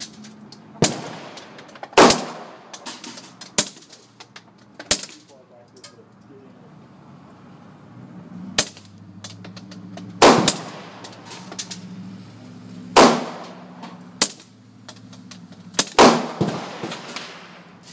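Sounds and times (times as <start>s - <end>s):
gunshots with ringing echo: 0.8s - 2.7s, 10.2s - 11.0s, 13.0s - 13.8s, 15.9s - 17.7s.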